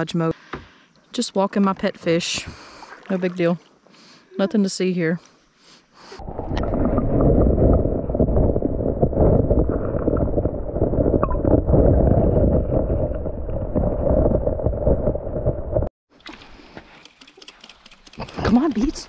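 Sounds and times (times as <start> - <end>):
muffled underwater river rushing: 6.2 - 15.9.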